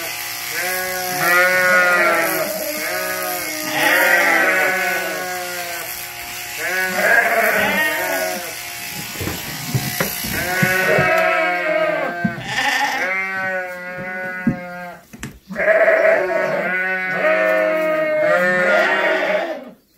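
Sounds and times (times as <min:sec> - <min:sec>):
sheep bleating: 0:00.0 - 0:09.0, 0:09.8 - 0:19.8
electric shears humming: 0:00.0 - 0:14.8.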